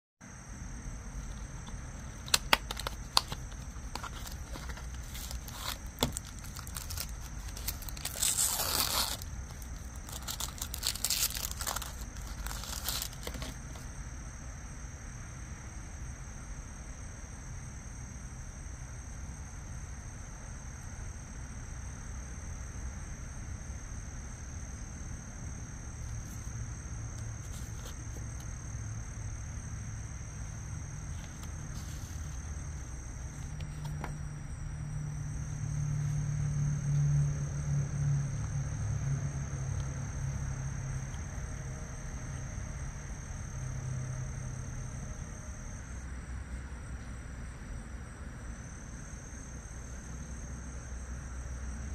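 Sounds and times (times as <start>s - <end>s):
steady low hum: 0.2s - 51.9s
packaging rustling and crinkling: 1.2s - 13.8s
box clicks: 2.2s - 9.2s.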